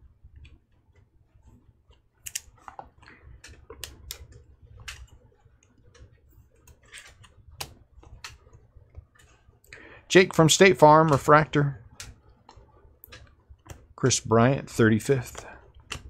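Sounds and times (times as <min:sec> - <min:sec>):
cards flipped and clicking: 0:02.2 - 0:05.1.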